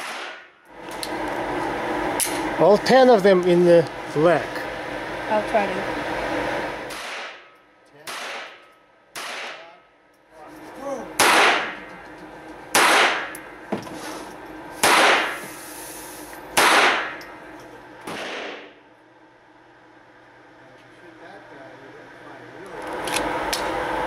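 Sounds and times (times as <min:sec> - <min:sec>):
pistol shots with echo: 0:00.0 - 0:00.5, 0:06.9 - 0:09.8, 0:11.2 - 0:11.8, 0:12.7 - 0:13.3, 0:14.8 - 0:15.4, 0:16.6 - 0:17.2, 0:18.1 - 0:18.7.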